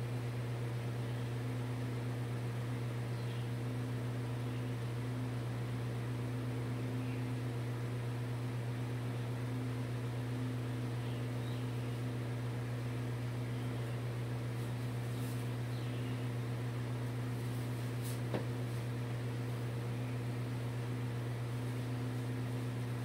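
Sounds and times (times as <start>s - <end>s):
low electrical hum: 0.0s - 23.0s
faint tap: 18.3s - 18.5s.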